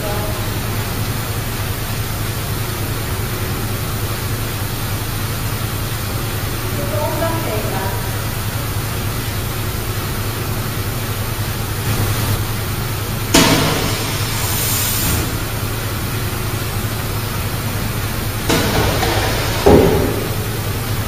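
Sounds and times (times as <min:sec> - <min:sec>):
machinery hum and hiss: 0:00.0 - 0:21.0
machine clunk: 0:13.3 - 0:14.5, 0:18.5 - 0:20.9.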